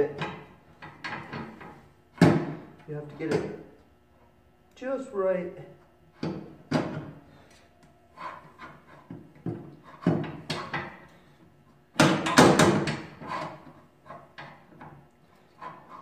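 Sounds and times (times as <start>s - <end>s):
metal clanking and knocking: 0.0s - 2.6s, 12.0s - 15.0s.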